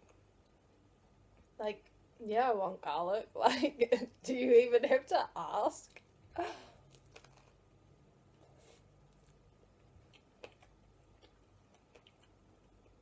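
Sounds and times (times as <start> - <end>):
person chewing: 6.8 - 7.6, 8.3 - 13.0.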